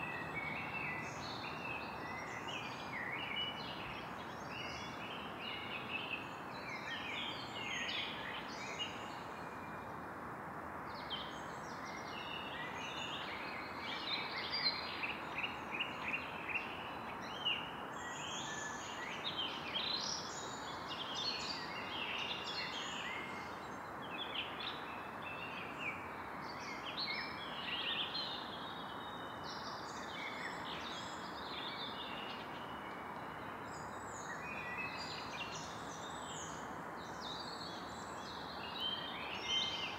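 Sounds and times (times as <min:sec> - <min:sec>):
birds singing and calling: 0:00.0 - 0:09.8, 0:11.0 - 0:39.9.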